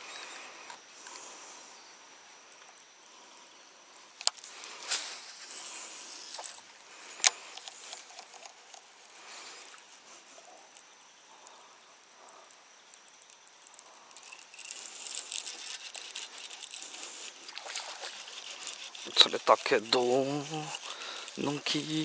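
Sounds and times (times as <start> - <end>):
crackling hiss: 0.0 - 22.0
soft rustling hiss: 0.0 - 22.0
fishing reel clicks: 7.1 - 10.8, 12.2 - 22.0.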